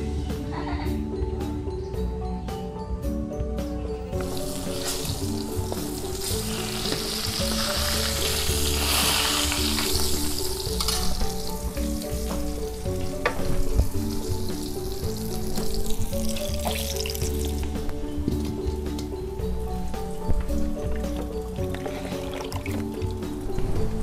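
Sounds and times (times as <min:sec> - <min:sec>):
background music: 0:00.0 - 0:24.0
fish sizzling in hot oil: 0:04.2 - 0:17.7.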